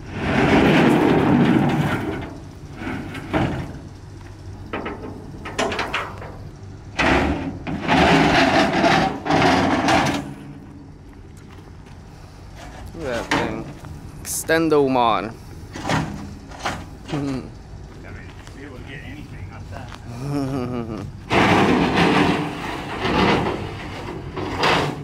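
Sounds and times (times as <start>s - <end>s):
metal clanks and knocks: 0.2s - 4.0s, 4.6s - 10.8s, 12.6s - 13.9s, 15.7s - 17.5s, 21.2s - 25.0s
metal scraping on metal: 7.0s - 10.5s.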